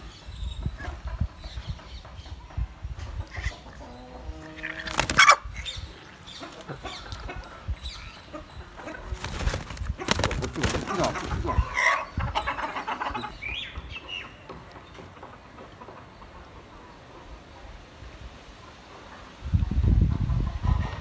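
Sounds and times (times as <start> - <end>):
chicken clucking: 0.7 - 5.5, 6.3 - 17.4.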